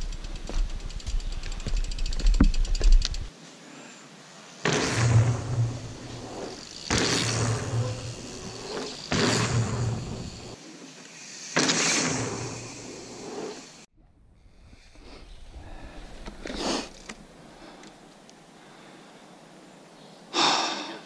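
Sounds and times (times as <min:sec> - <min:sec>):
low rumble of bike riding: 0:00.0 - 0:03.3, 0:04.7 - 0:19.0
tyre and wind noise: 0:00.0 - 0:03.3.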